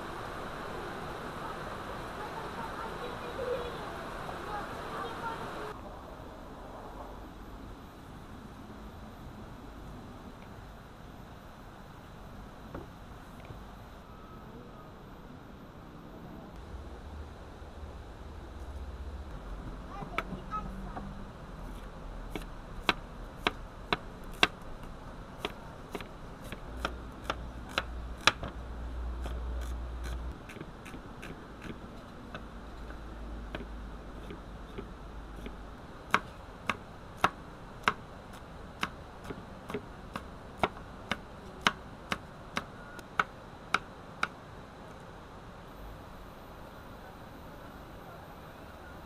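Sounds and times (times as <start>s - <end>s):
cleaver chopping on wooden board: 33.6s - 38.0s.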